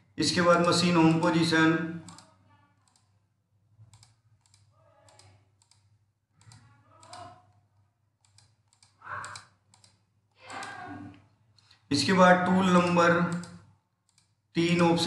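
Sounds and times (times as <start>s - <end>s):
computer keyboard clicks: 2.0s - 3.2s, 3.8s - 7.6s, 8.2s - 10.8s, 13.2s - 14.4s.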